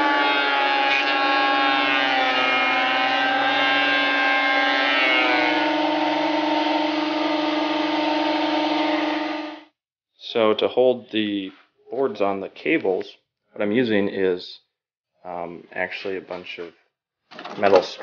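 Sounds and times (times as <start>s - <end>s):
thickness planer cutting wood: 0.0s - 9.6s.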